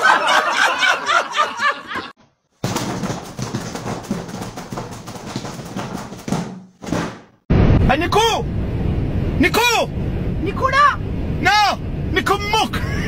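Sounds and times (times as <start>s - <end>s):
adults laughing: 0.0s - 2.2s
quick knocks: 2.6s - 7.4s
boy shouting excitedly: 10.4s - 11.0s.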